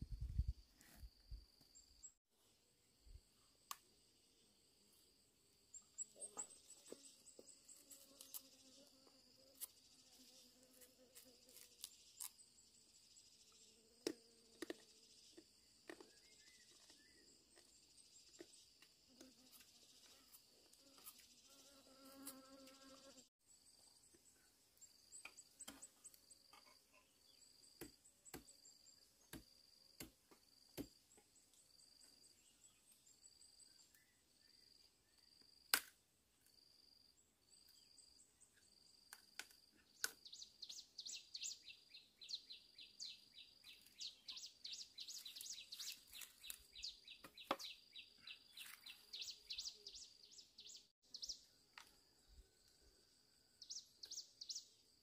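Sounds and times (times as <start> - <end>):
insects chirping: 36.3 - 53.0.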